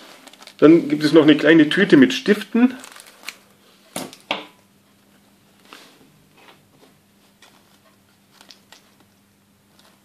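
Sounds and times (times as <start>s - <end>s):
plastic bag crinkling: 0.0s - 4.2s
faint steady hum: 0.0s - 10.0s.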